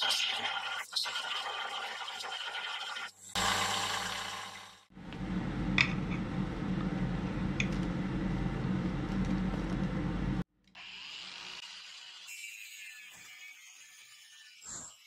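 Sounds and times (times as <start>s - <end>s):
low workshop hum: 3.3s - 15.0s.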